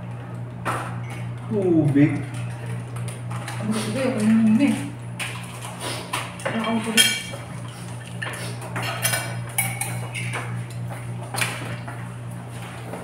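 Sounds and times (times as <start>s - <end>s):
steady low hum: 0.0s - 13.0s
tableware clinking: 6.6s - 7.4s, 8.8s - 10.4s.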